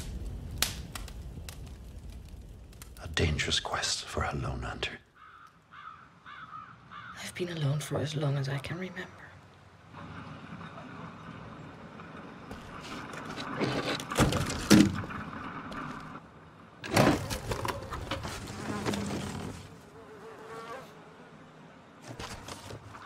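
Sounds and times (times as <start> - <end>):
flies buzzing: 18.4 - 22.2.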